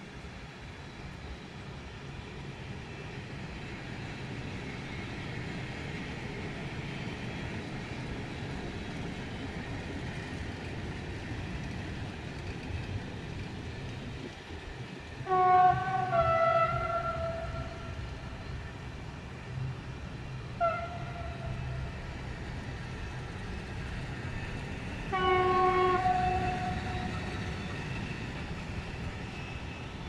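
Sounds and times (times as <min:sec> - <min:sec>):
freight train rumbling past: 0:00.0 - 0:30.0
train horn blasts: 0:15.2 - 0:18.0, 0:20.6 - 0:21.9, 0:25.1 - 0:27.4.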